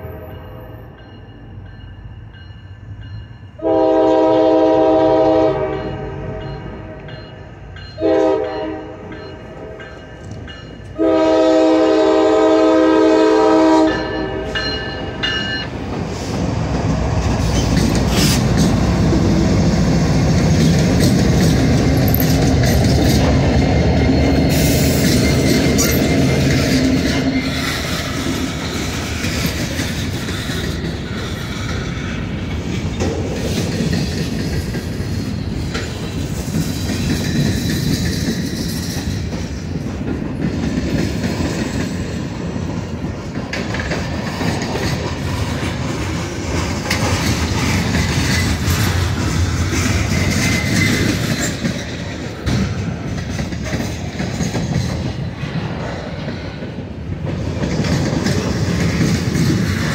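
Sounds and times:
train wheels clacking over rails: 1.0s - 59.9s
train horn blasts: 3.6s - 7.1s, 8.0s - 9.8s, 11.0s - 14.7s
locomotives passing: 8.8s - 59.9s.

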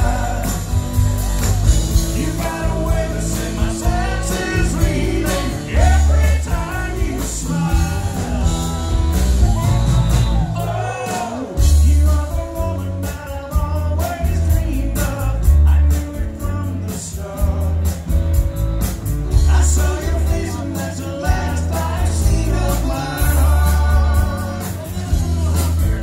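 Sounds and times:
electric guitar: 0.0s - 10.6s
acoustic guitars strumming: 0.0s - 26.0s
bass guitar: 0.0s - 26.0s
drums: 0.0s - 26.0s.

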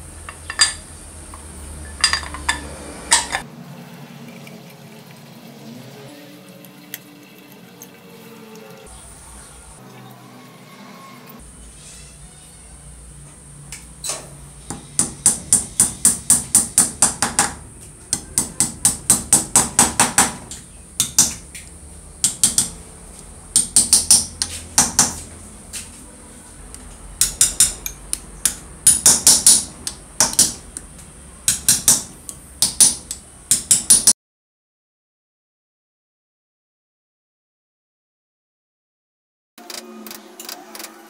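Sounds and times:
hammer tapping metal punch: 0.3s - 3.4s, 14.7s - 21.4s, 22.2s - 22.8s, 23.5s - 25.2s, 27.2s - 30.8s, 31.4s - 34.1s.

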